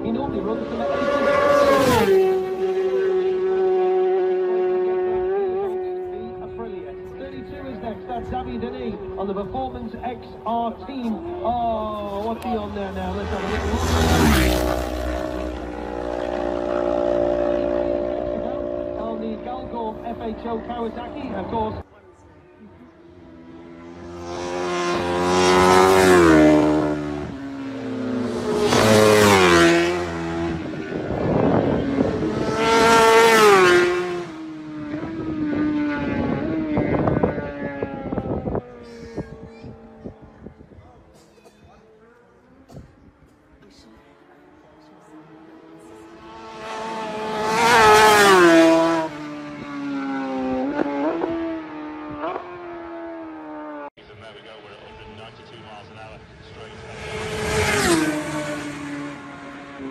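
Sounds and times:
racing motorcycles passing: 0.0s - 59.9s.

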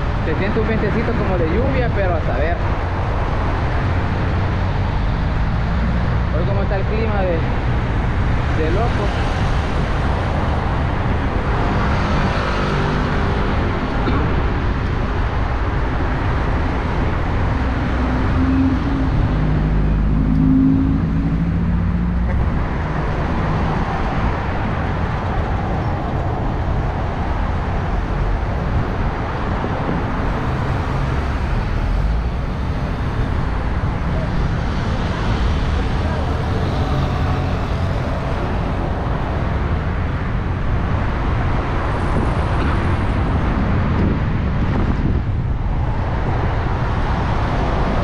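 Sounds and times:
cars passing: 0.0s - 48.0s
loud engine going by: 17.0s - 25.0s, 29.9s - 40.5s.

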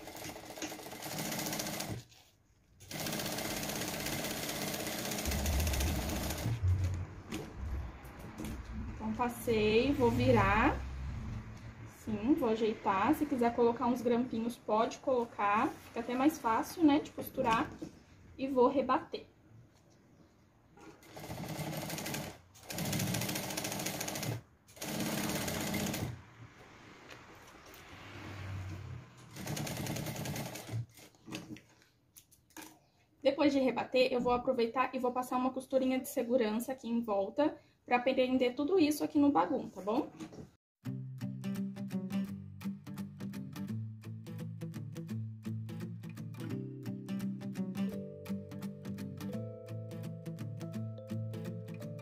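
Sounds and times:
sewing machine stitching: 0.0s - 6.6s, 20.8s - 26.2s, 29.2s - 31.6s.

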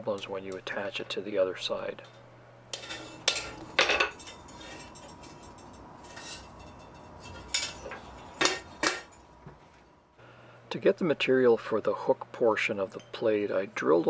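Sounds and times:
hammer clinking steel on anvil: 2.7s - 9.2s.

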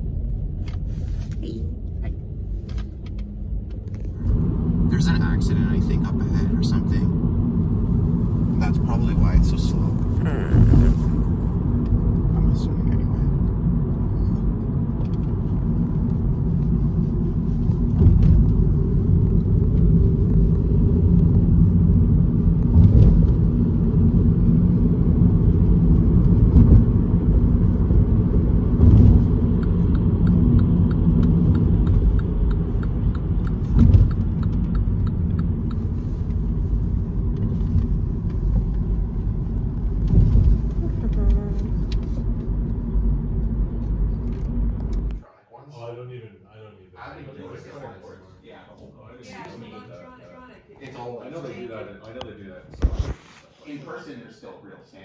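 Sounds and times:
car engine and tyre rumble: 0.0s - 45.3s
faint regular ticking: 29.6s - 35.9s.

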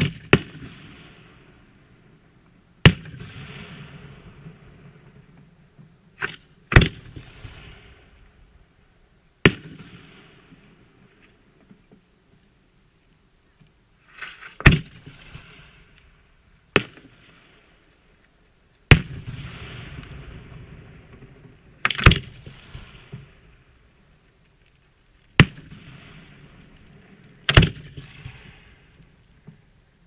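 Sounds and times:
firework shells bursting: 18.9s - 23.8s.

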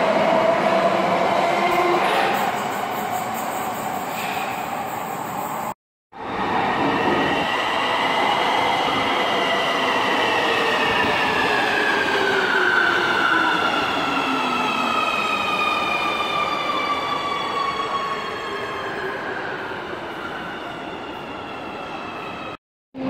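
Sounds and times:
train running and rolling noise: 0.0s - 15.7s
metro train high whine: 0.0s - 23.0s.

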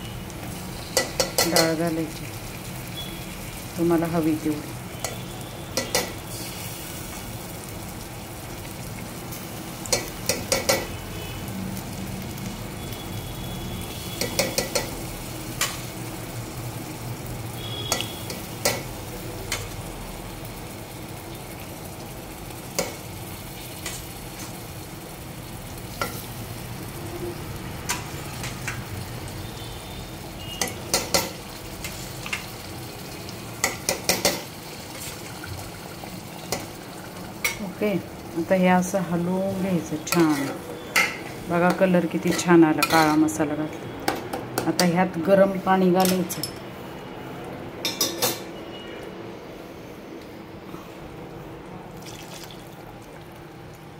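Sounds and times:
food sizzling: 0.0s - 47.0s, 51.8s - 53.9s
metal ladle scraping pot: 40.0s - 43.4s.

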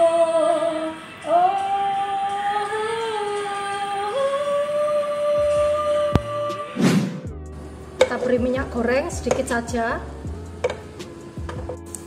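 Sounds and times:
woman singing unaccompanied: 0.0s - 6.8s.

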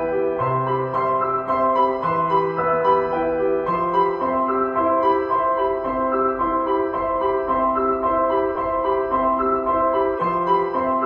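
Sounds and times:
gentle piano melody: 0.0s - 11.0s.

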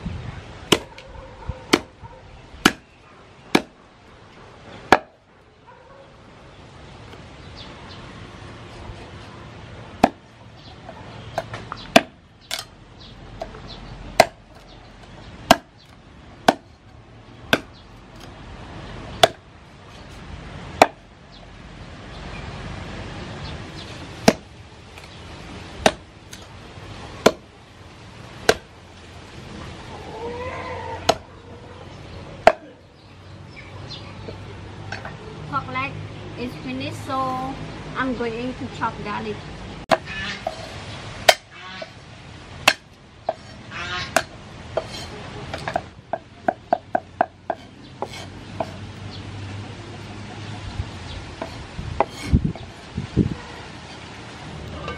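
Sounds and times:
cleaver chopping on wooden block: 0.7s - 1.0s, 1.7s - 1.9s, 2.6s - 2.9s, 3.5s - 3.8s, 4.9s - 5.2s, 10.0s - 10.2s, 11.4s - 12.7s, 14.2s - 14.8s, 15.4s - 16.7s, 17.5s - 18.3s, 19.2s - 19.4s, 20.8s - 21.0s, 24.2s - 25.1s, 25.8s - 26.5s, 27.2s - 27.5s, 28.5s - 28.7s, 31.0s - 31.2s, 32.4s - 32.7s, 41.3s - 41.5s, 42.6s - 43.5s, 44.1s - 48.8s.

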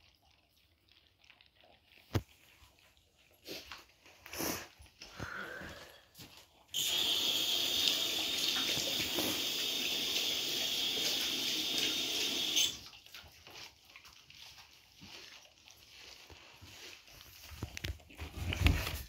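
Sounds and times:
water running: 2.0s - 19.0s.

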